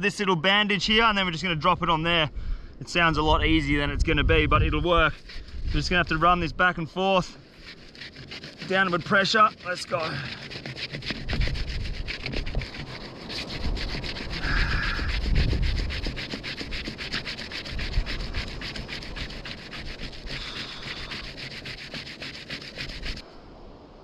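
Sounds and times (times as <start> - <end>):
bandage roll rubbing between wood: 5.0 - 6.4, 7.5 - 23.2.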